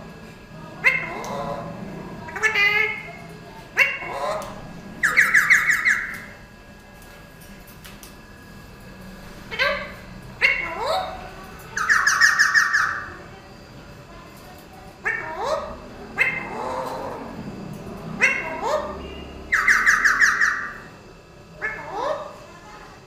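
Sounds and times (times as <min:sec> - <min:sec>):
parakeets calling: 0:00.8 - 0:06.4, 0:09.5 - 0:13.2, 0:15.0 - 0:21.0, 0:21.6 - 0:22.4
parakeet harsh screeching: 0:03.8 - 0:06.3, 0:11.8 - 0:13.1, 0:18.2 - 0:20.9.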